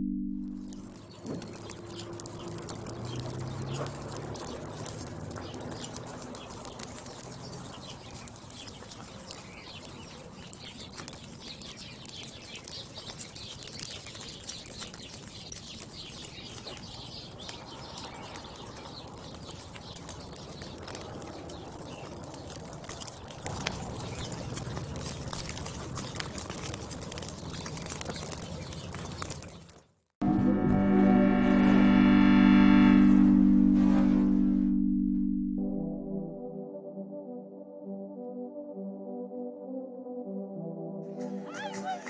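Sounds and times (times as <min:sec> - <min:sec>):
steady crackle of small sounds: 0:00.5 - 0:30.1
birds calling: 0:00.6 - 0:29.8.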